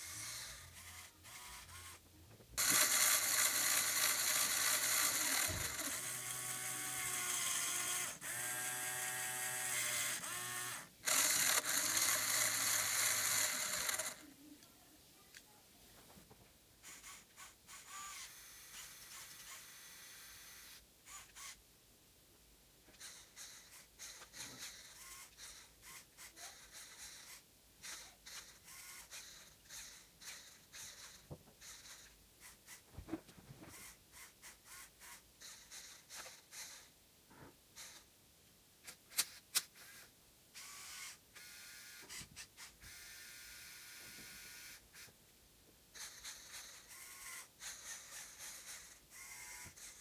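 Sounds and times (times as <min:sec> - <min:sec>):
toy electric motors whirring: 0:00.0 - 0:14.3, 0:16.8 - 0:21.6, 0:22.9 - 0:32.9, 0:33.7 - 0:36.9, 0:37.8 - 0:38.1, 0:38.8 - 0:45.2, 0:45.9 - 0:50.0
motor whine: 0:02.6 - 0:14.2.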